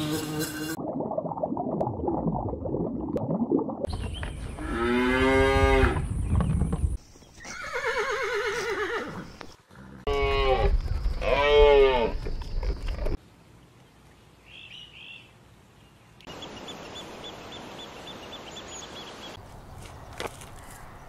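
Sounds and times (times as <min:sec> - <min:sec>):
horse whinnying: 0:07.4 - 0:12.2.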